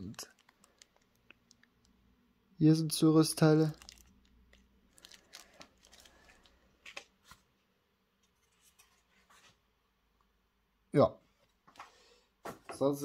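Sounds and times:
plastic bag crinkling: 0.0 - 2.0, 3.4 - 7.4.

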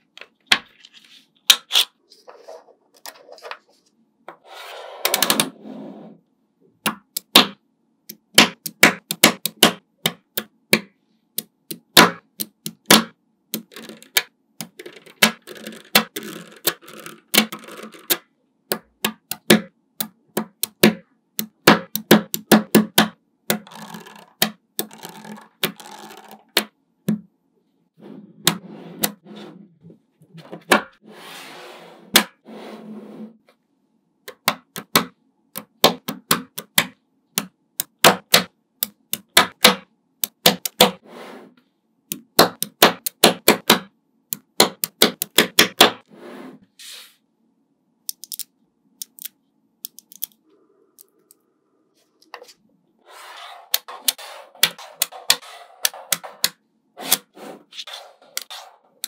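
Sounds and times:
magnetic balls clicking together: 48.1 - 50.4.

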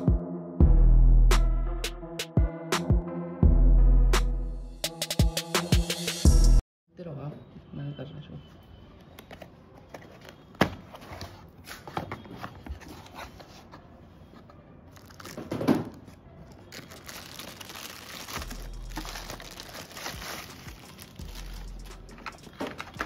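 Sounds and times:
plastic wrap crinkling: 14.9 - 23.0
cardboard box being opened: 16.7 - 21.6.

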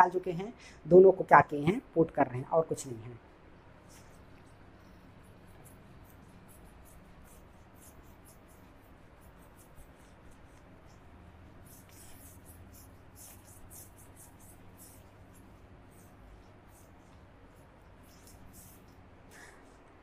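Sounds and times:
duster rubbing whiteboard: 3.9 - 19.8.

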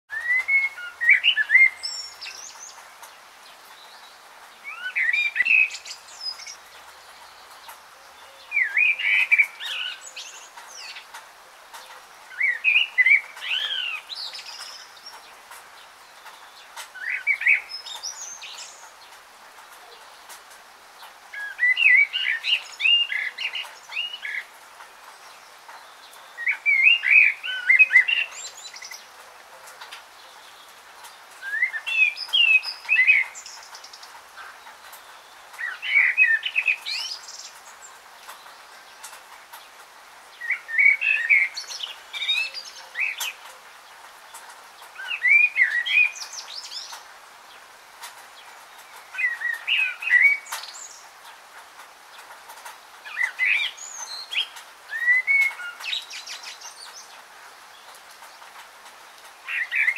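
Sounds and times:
songbird warbling: 4.6 - 7.4, 8.0 - 11.1, 11.8 - 15.1, 25.8 - 29.2, 31.4 - 37.7, 40.4 - 43.6, 48.8 - 51.0, 53.0 - 57.2, 59.4 - 59.9.

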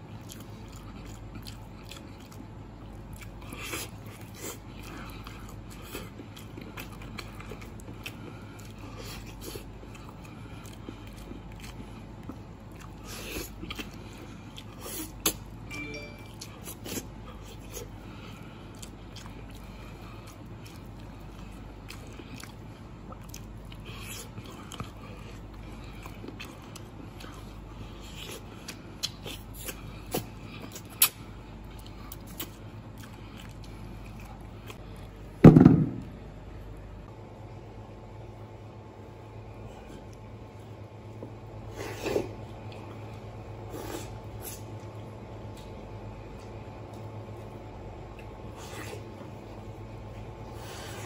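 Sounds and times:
person chewing and sucking: 0.0 - 35.2.

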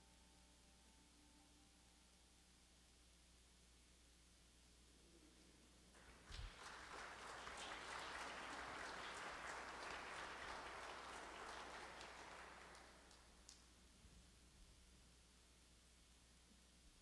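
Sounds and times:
congregation applauding: 6.0 - 13.6.

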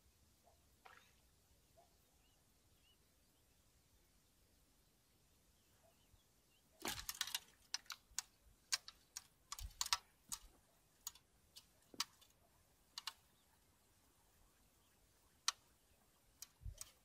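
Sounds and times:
fishing rod and reel clicks: 6.8 - 13.3, 15.4 - 17.0.

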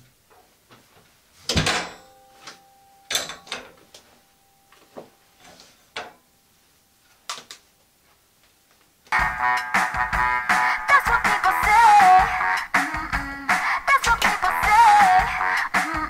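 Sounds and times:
clothes rustling: 0.0 - 9.1.

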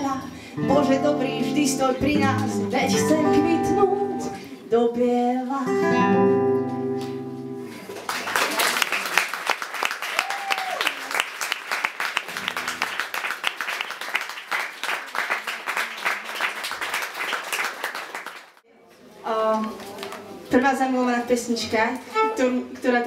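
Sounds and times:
audience applauding: 7.9 - 18.6.

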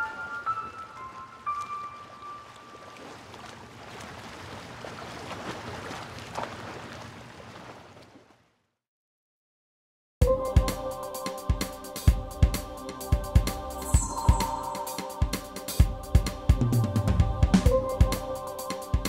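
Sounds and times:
water lapping: 0.0 - 8.6
held music note: 13.8 - 16.0.

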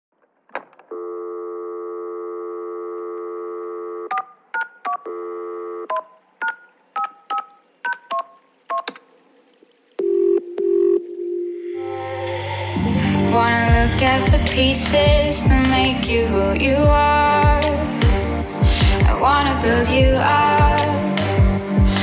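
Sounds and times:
dial tone: 0.9 - 4.2, 5.1 - 5.9, 10.0 - 11.8
telephone ringing tone: 0.9 - 6.0, 10.0 - 11.8.

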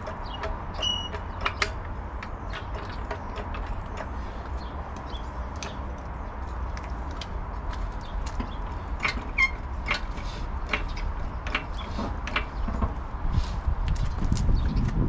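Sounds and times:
hand tools clicking and tapping: 0.0 - 13.0
steady low rumble: 0.0 - 15.0.

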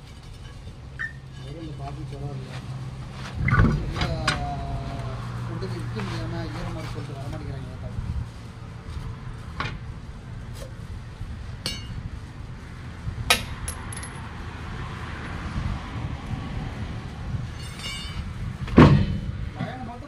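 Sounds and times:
metal tools clinking on wheel: 13.4 - 14.3, 17.5 - 18.2.

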